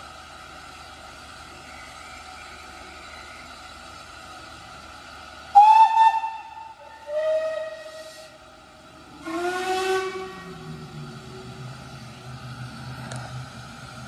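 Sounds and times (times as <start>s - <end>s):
faint steady steam hiss: 0.0s - 14.0s
steam locomotive whistles: 5.5s - 8.5s, 9.1s - 11.0s.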